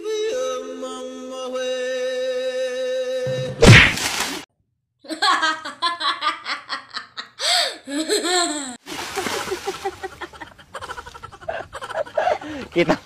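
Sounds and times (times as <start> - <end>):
child laughing: 5.1 - 12.6
sharp gasp of breath: 7.4 - 7.8.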